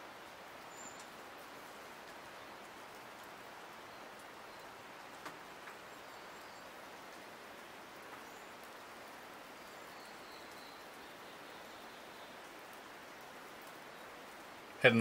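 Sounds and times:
light rain falling: 0.0 - 15.0.

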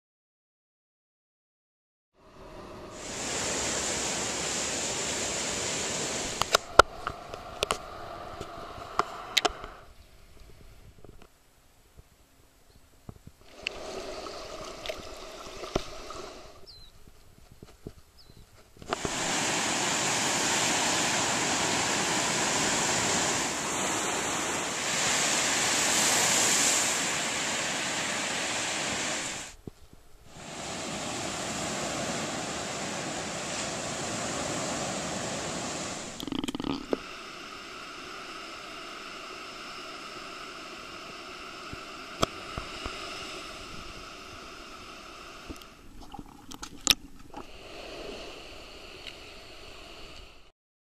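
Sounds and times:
ocean surf rushing: 2.2 - 10.0, 18.9 - 29.6, 30.3 - 50.5
faint underwater hum: 2.2 - 18.2, 19.1 - 50.5.

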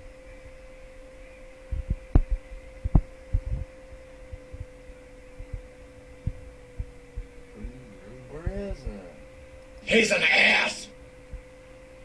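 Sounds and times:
electrical hum: 0.0 - 12.0
dull low thumps: 1.7 - 3.7, 4.3 - 4.8, 5.4 - 7.9.

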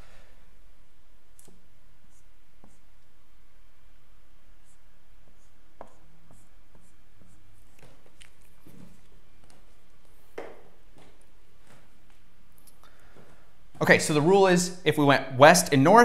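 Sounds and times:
steady low hum: 0.0 - 16.0
marker drawing on whiteboard: 1.2 - 3.2, 4.4 - 12.4.

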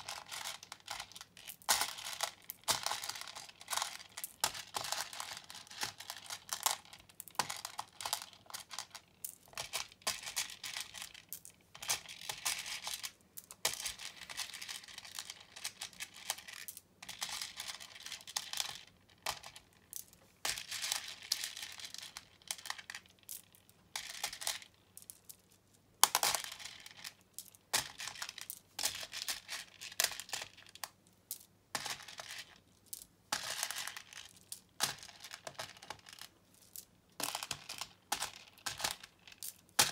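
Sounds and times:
plastic beads clicking and rattling: 0.0 - 39.9.

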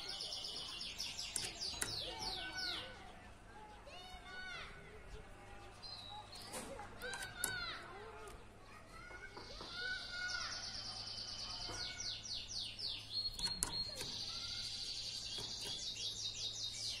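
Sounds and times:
canary singing trills: 0.0 - 4.2, 9.4 - 17.0.

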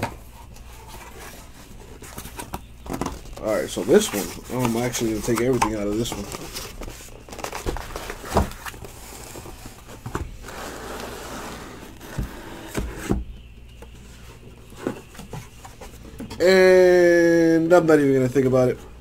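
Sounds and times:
foil packs scraping and rustling: 0.3 - 13.0.

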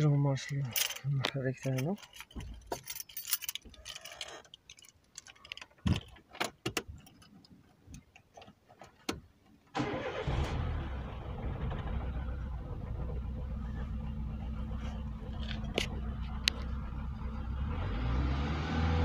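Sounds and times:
car engine starting and idling: 9.7 - 19.0.

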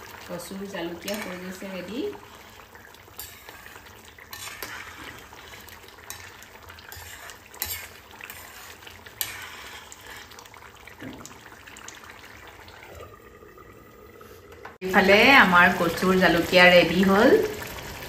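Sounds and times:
curry bubbling and sizzling: 0.0 - 18.0
metal spatula scraping a pan: 1.0 - 10.5.

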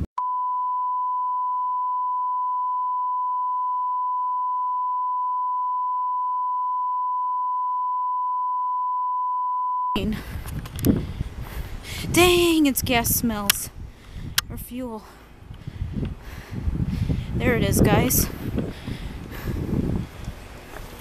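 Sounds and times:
censor bleep tone: 0.1 - 10.0.

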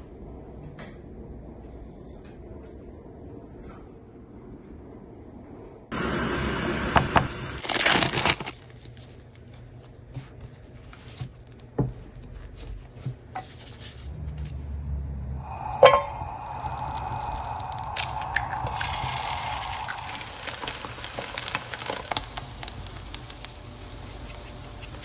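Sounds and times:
butter sizzling in a pan: 17.8 - 24.0.

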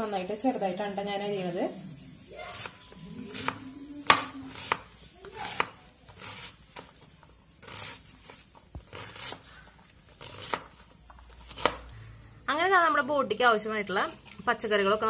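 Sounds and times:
knife slicing strokes: 2.4 - 7.0, 7.6 - 11.9
knife chopping on plastic board: 3.3 - 6.9.

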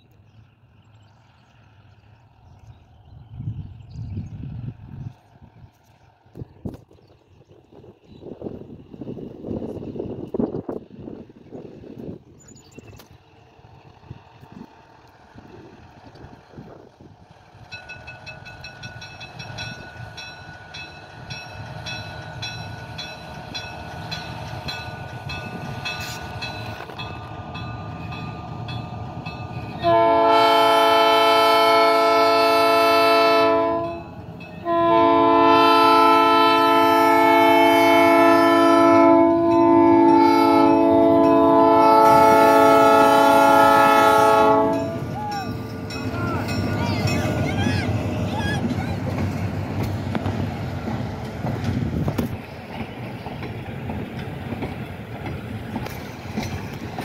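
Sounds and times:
diesel locomotive engine running: 0.0 - 57.0
multi-tone air horn blasts: 29.8 - 34.0, 34.6 - 45.0.

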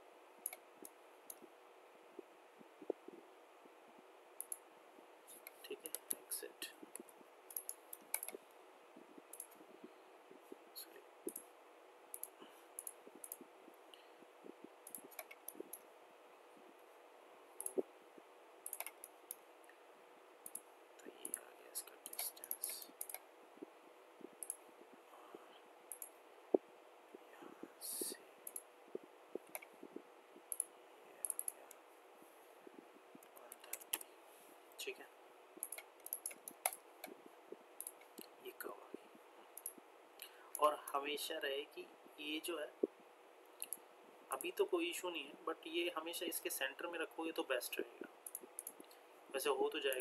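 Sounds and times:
faint room hiss: 0.0 - 50.0
faint steady hum: 0.0 - 50.0
computer mouse clicking: 0.4 - 1.5, 4.4 - 4.6, 5.3 - 8.6, 9.2 - 9.7, 11.2 - 11.5, 12.1 - 15.9, 17.6 - 17.9, 18.6 - 19.8, 20.4 - 23.3, 24.2 - 24.6, 25.3 - 26.6, 27.6 - 31.8, 32.6 - 34.1, 35.6 - 38.4, 39.6 - 40.8, 43.6 - 44.5, 48.2 - 49.0, 49.7 - 50.0
mouse and keyboard clicks: 6.9 - 8.4, 9.3 - 9.6, 14.8 - 15.8, 18.6 - 19.4, 20.4 - 23.2, 25.9 - 26.2, 30.5 - 31.8, 33.2 - 34.1, 35.6 - 37.2.

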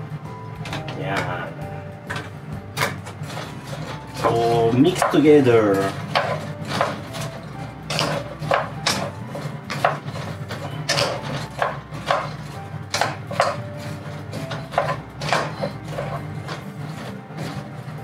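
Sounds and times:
utensil knocking and scraping: 0.6 - 18.0.

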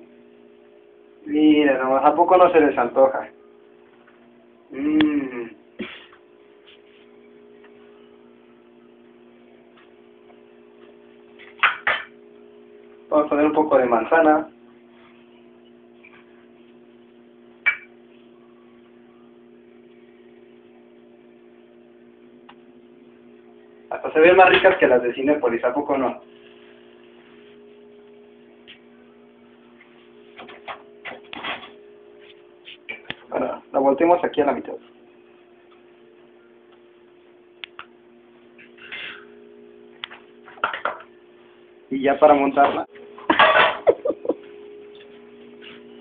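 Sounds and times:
steady low hum: 0.0 - 46.0
kitchenware clinking: 43.3 - 44.0.

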